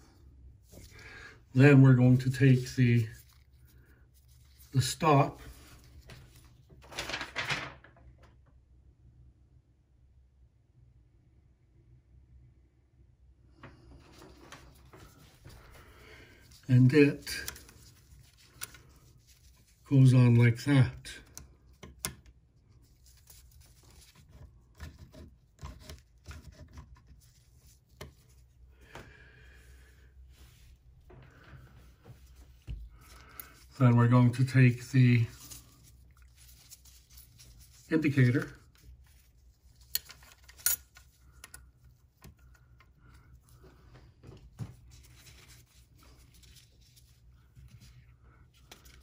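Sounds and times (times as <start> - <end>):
soft rubbing: 30.1 - 40.0.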